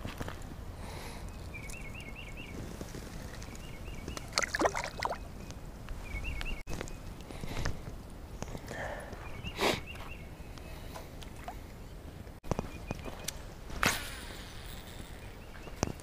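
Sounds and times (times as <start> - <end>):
fish splashing in water: 4.1 - 5.3.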